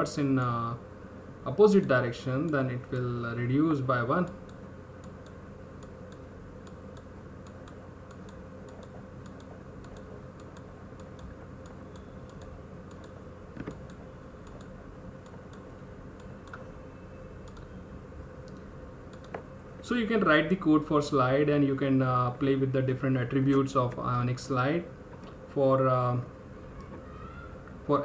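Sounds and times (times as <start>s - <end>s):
steady background hum: 0.0s - 28.0s
computer clicking: 4.2s - 16.7s, 17.4s - 17.8s, 18.4s - 19.5s.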